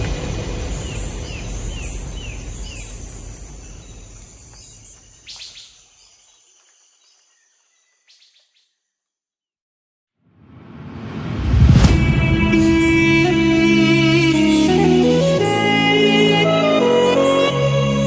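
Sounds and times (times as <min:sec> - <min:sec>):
bird-like chirps: 0:00.1 - 0:09.1
background music: 0:11.5 - 0:18.0.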